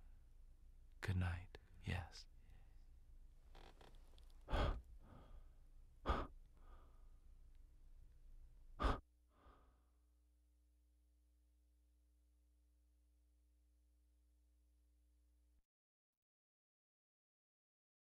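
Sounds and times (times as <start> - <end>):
faint steady hum: 0.0 - 15.5
person breathing sharply: 4.5 - 7.2, 8.8 - 10.0.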